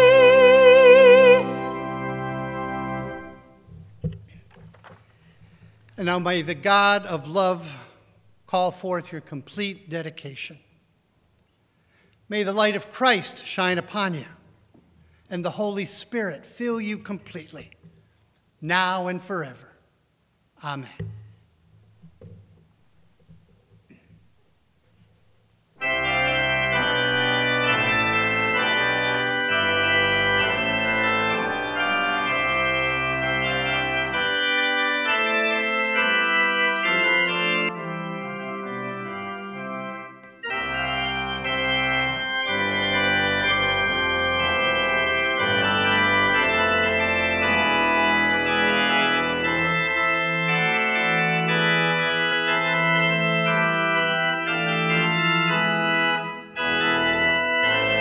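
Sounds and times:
organ playing chords: 0:00.0 - 0:04.4, 0:05.0 - 0:10.4, 0:25.8 - 0:58.0.

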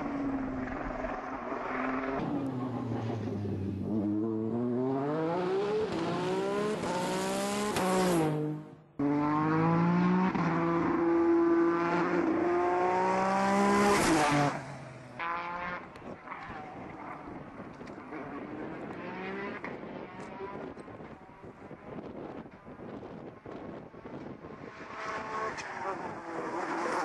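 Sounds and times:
race car engine revving hard: 0:18.1 - 0:20.7.

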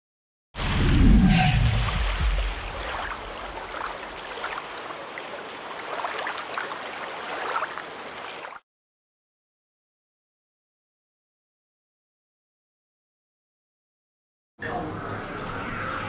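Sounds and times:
deep rumble: 0:00.6 - 0:03.8
sea water ambience: 0:00.6 - 0:08.6
small splashes or clicks: 0:01.8 - 0:08.6.

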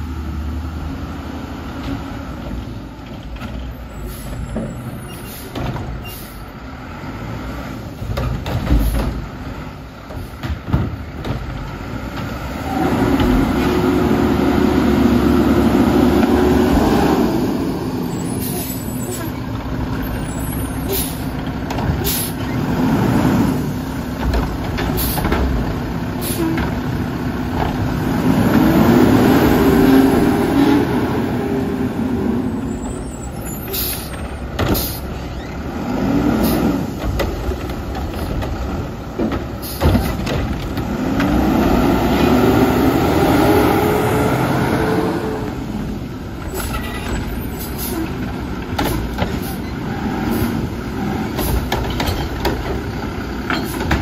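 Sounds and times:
garbage truck engine revving: 0:06.4 - 0:54.0
air brake hisses: 0:26.2 - 0:26.6.

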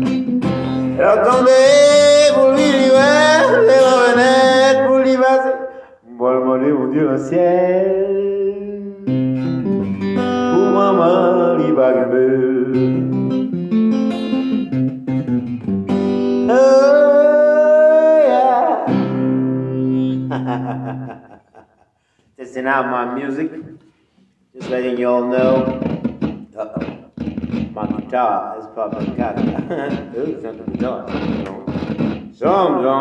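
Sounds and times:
acoustic guitar playing: 0:00.0 - 0:05.8, 0:07.9 - 0:21.2, 0:24.6 - 0:28.2, 0:28.8 - 0:33.0
man singing: 0:00.8 - 0:09.2, 0:10.4 - 0:13.2, 0:16.3 - 0:20.8, 0:24.6 - 0:26.0, 0:32.4 - 0:33.0.

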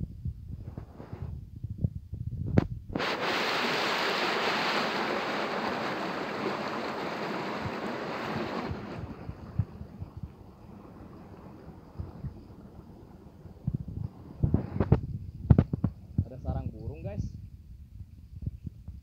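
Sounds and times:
stream water flowing: 0:03.0 - 0:14.4.

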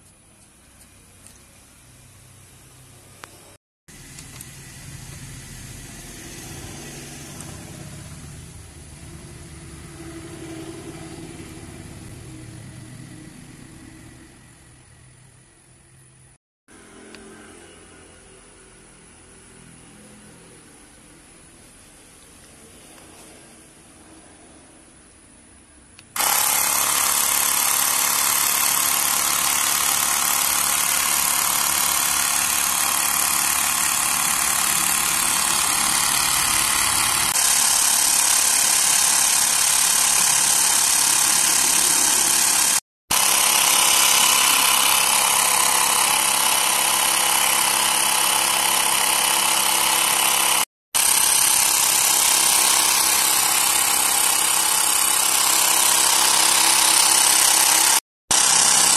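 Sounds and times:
air compressor buzzing: 0:03.1 - 0:15.8, 0:26.0 - 0:58.9.

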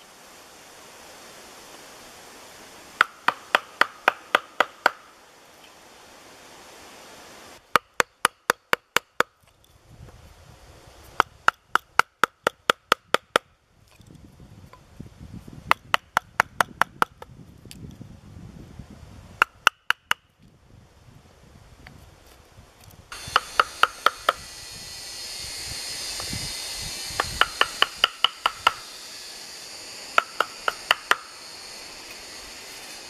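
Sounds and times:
mallet striking steel chisel: 0:23.2 - 0:24.4, 0:27.2 - 0:28.8, 0:30.2 - 0:31.3.

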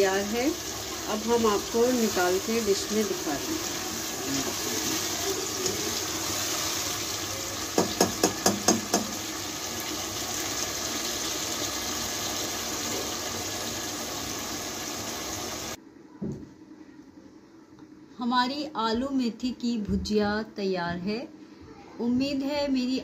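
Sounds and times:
curry sizzling in a pot: 0:00.0 - 0:15.8
spatula knocking against pot: 0:07.8 - 0:09.2.

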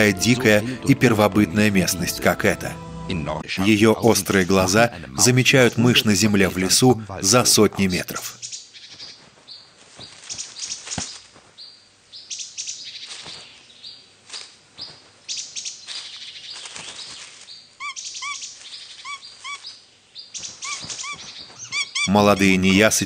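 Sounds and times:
small birds chirping and twittering: 0:07.9 - 0:23.0
bird giving short arched calls: 0:17.8 - 0:19.8, 0:20.4 - 0:22.1.

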